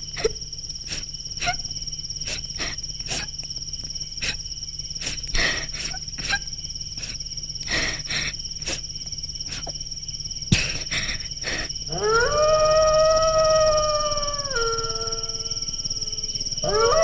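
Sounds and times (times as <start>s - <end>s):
crickets trilling: 0.0s - 17.0s
low steady hum: 0.0s - 17.0s.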